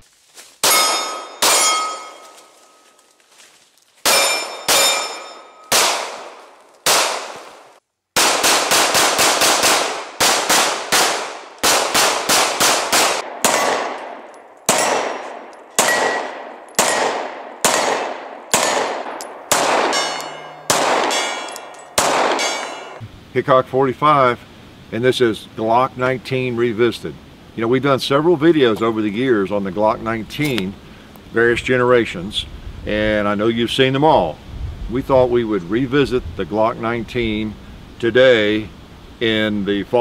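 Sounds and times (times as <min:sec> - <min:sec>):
steel targets ringing: 0:00.6 - 0:03.0, 0:04.0 - 0:06.4, 0:13.4 - 0:23.0
pistol firing: 0:04.0 - 0:07.6, 0:08.2 - 0:23.0.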